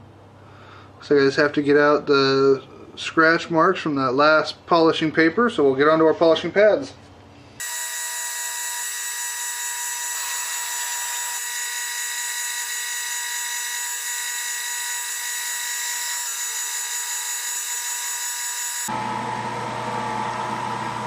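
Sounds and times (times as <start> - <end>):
lathe motor whine: 7.6 - 21.0.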